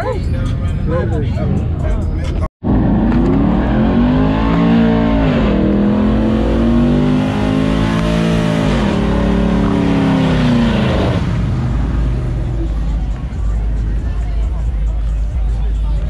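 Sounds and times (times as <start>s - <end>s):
car engine revving hard: 2.6s - 14.7s.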